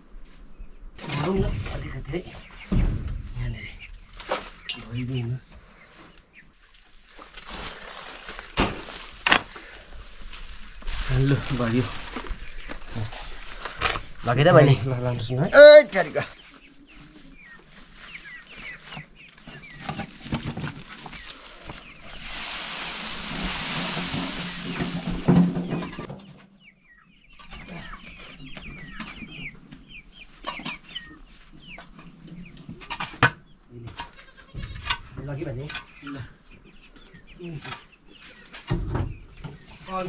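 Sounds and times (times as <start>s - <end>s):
chickens clucking: 0.2s - 40.0s
steady hiss: 21.8s - 25.4s.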